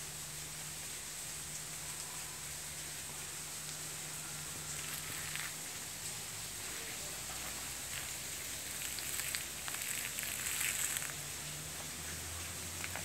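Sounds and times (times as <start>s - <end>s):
steady outdoor hiss: 0.0s - 13.0s.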